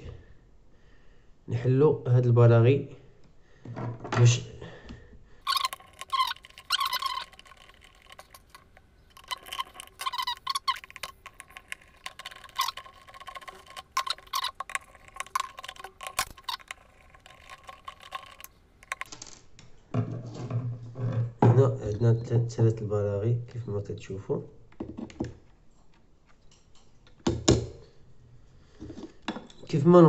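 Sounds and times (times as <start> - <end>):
screwdriver clicks and scrapes: 5.5 - 19.2.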